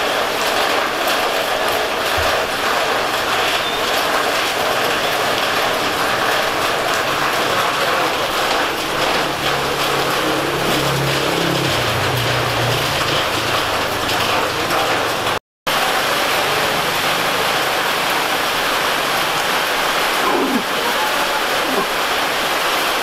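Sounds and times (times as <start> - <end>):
roadside traffic noise: 0.0 - 23.0
low engine hum passing: 8.4 - 15.4.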